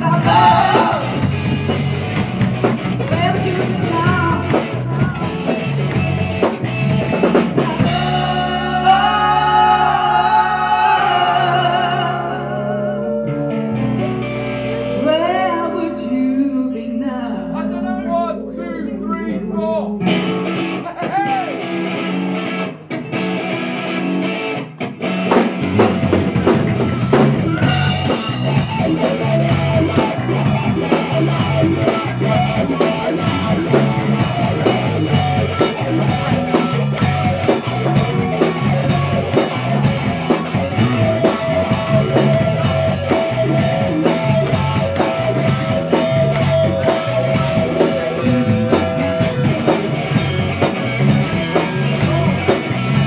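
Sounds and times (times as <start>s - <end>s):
drums and cymbals: 0.0s - 9.2s, 25.2s - 53.0s
electric bass: 0.0s - 53.0s
electric guitar: 0.0s - 53.0s.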